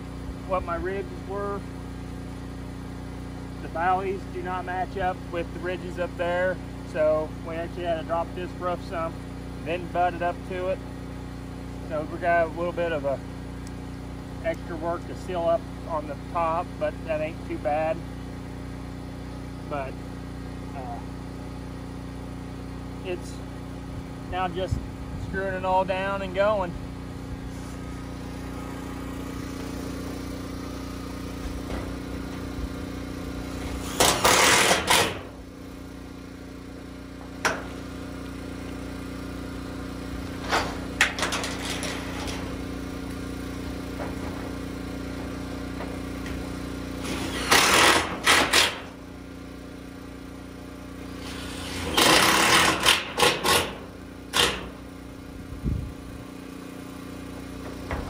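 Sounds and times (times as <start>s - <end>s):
steady engine hum: 0.0s - 58.0s
drill driving screws into metal: 33.8s - 35.3s, 47.0s - 48.9s, 51.2s - 54.8s.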